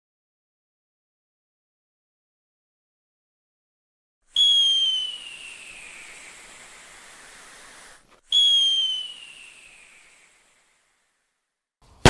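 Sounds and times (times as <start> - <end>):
firework whistling: 4.3 - 11.4
firework hiss: 4.4 - 11.5.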